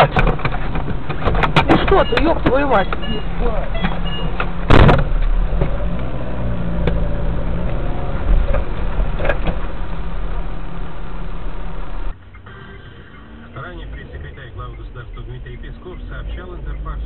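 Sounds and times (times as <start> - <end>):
car engine and road rumble: 0.0 - 17.0
loud thump: 4.6 - 5.8.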